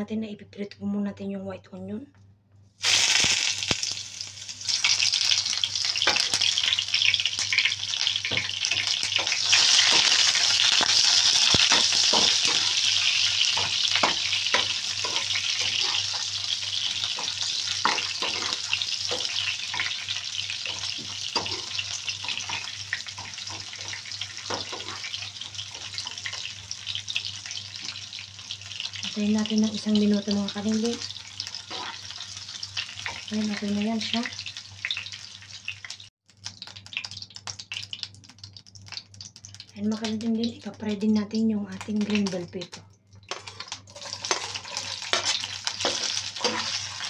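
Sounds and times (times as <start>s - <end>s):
onions sizzling in hot oil: 2.8s - 40.7s, 43.3s - 47.0s
metal spoon scraping a pan: 7.5s - 26.5s, 31.5s - 32.2s, 43.3s - 47.0s.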